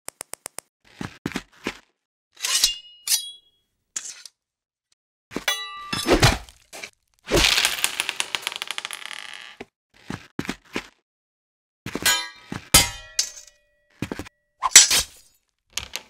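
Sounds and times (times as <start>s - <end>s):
metallic clangs of weapons clashing: 2.4s - 4.4s, 5.4s - 6.9s, 12.0s - 13.6s.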